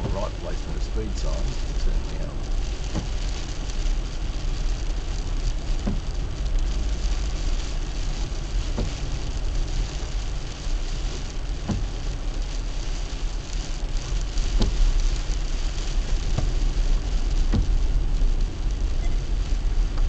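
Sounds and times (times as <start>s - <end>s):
rain and spray hissing: 0.0s - 20.0s
tyres and engine rumbling: 0.0s - 20.0s.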